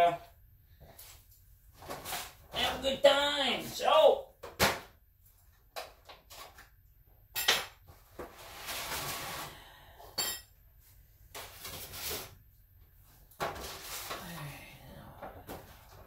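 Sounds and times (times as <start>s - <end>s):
rustling or scraping: 0.8s - 2.6s, 7.9s - 9.7s, 10.8s - 12.4s, 13.1s - 14.4s.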